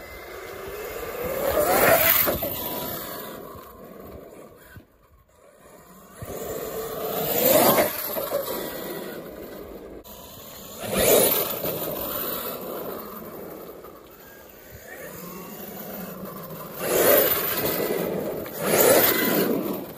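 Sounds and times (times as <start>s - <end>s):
rc truck motor and tyres surging: 0.0s - 19.9s.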